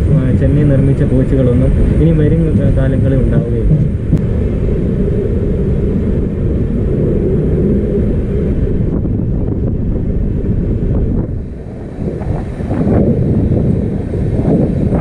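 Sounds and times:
train coach rumbling on track: 0.0s - 4.4s.

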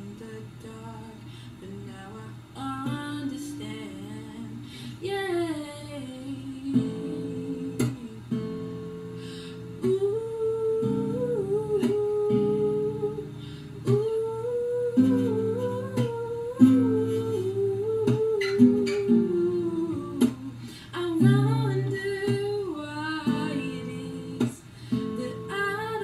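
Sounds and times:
acoustic guitar chords: 0.0s - 26.0s
woman humming: 6.2s - 8.2s, 9.8s - 26.0s.

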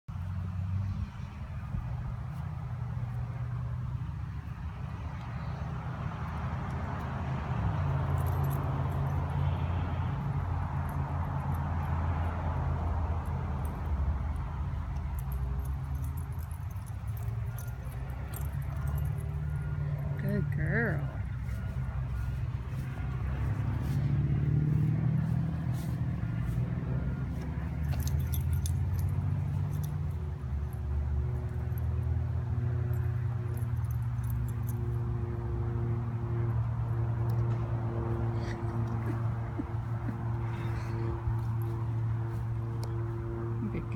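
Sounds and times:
dog collar tags jingling: 7.8s - 10.0s, 10.6s - 20.1s, 27.3s - 35.0s.

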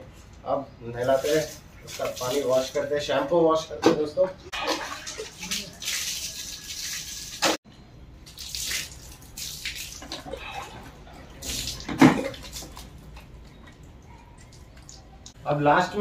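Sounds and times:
water pouring and splashing: 1.0s - 2.8s, 4.5s - 7.6s, 8.2s - 15.4s
water splashing on concrete: 1.1s - 2.8s, 4.6s - 7.6s, 8.2s - 10.4s, 11.4s - 13.3s.

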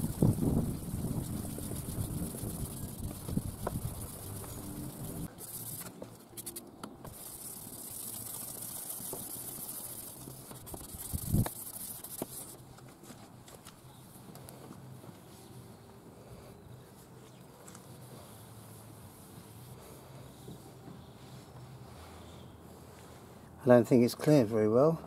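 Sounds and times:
abrasive pad rubbing plastic: 0.0s - 12.6s.

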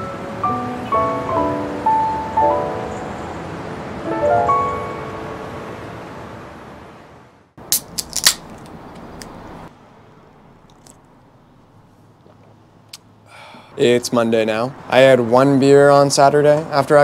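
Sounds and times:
background music: 0.0s - 6.6s
drink can pull tab cracking open: 7.7s - 9.4s.

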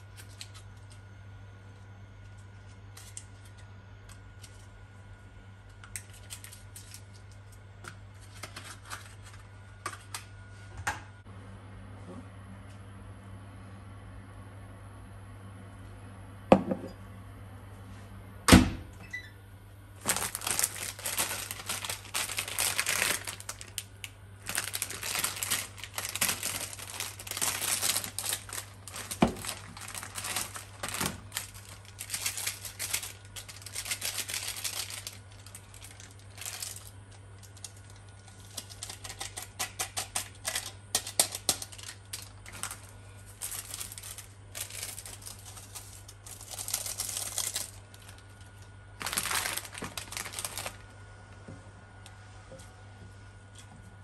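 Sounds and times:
sachet tearing open: 0.0s - 1.0s, 2.3s - 4.7s, 5.8s - 7.6s, 20.0s - 50.9s
plastic packet crinkling and tearing: 0.0s - 1.1s, 2.2s - 4.7s, 5.7s - 10.2s, 20.0s - 50.9s
glass mug knocking on counter: 16.5s - 16.9s.

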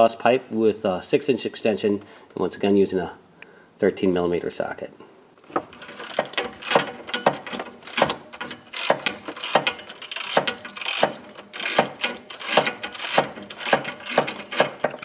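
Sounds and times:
socket wrench ratchet clicking: 5.8s - 15.0s.

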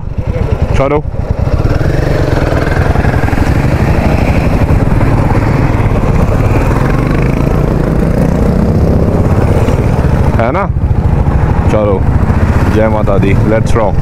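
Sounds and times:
motorcycle engine idling: 0.0s - 14.0s
motorcycles passing: 0.0s - 14.0s.

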